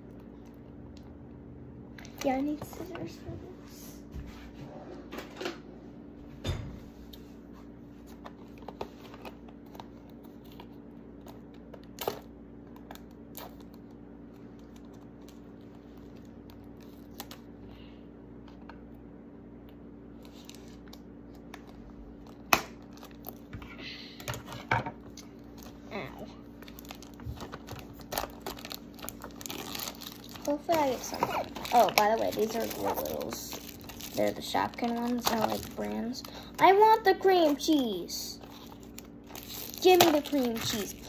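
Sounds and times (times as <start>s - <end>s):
steady low hum: 0.0s - 41.0s
packaging crinkling: 20.2s - 23.5s, 25.2s - 41.0s.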